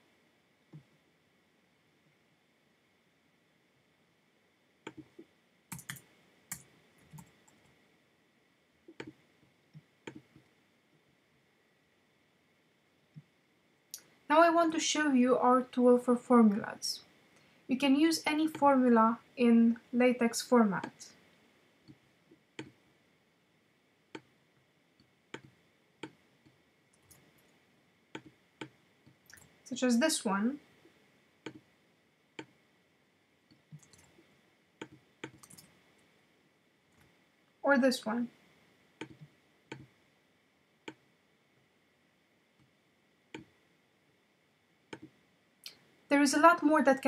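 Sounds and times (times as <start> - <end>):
keyboard keys clicking: 4.9 - 7.3, 33.7 - 34.2, 34.8 - 35.7
mouse buttons clicking: 8.9 - 9.2, 25.3 - 26.2.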